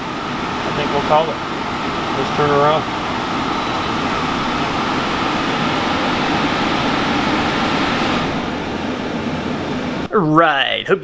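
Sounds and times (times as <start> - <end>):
air conditioner fan and compressor: 0.0 - 11.0.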